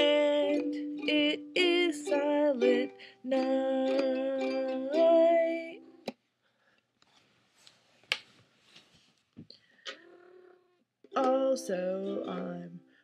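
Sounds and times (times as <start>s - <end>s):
ukulele chord: 0.0s - 6.0s, 11.1s - 12.7s
woman singing: 0.0s - 6.0s, 11.1s - 12.9s.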